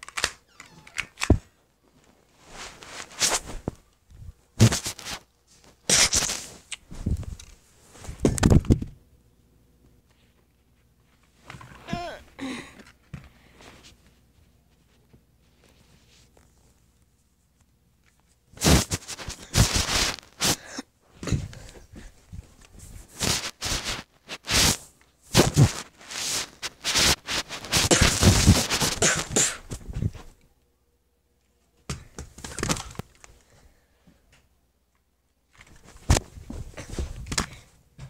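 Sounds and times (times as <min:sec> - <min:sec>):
phone handling rubbing and scraping: 0:23.2 - 0:29.0.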